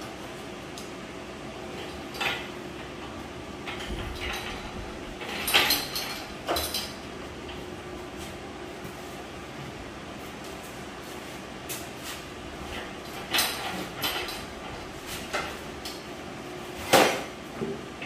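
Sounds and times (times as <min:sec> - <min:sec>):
steady low hum: 0:00.0 - 0:18.0
metal clunks and rattles: 0:03.6 - 0:07.6, 0:12.6 - 0:15.6.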